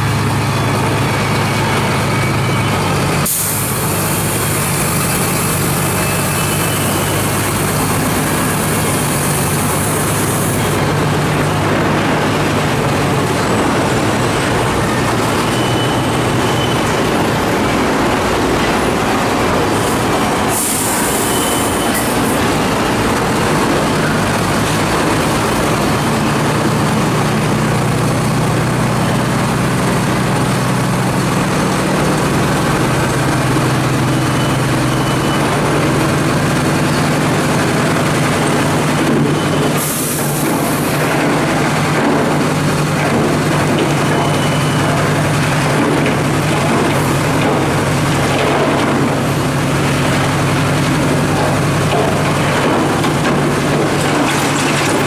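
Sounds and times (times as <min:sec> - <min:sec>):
diesel truck engine running: 0:00.0 - 0:55.0
air hiss: 0:03.2 - 0:04.4, 0:20.5 - 0:21.3.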